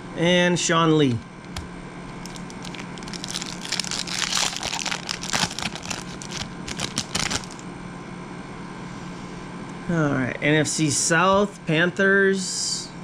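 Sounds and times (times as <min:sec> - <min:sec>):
foil wrapper crinkling: 0:02.1 - 0:07.6.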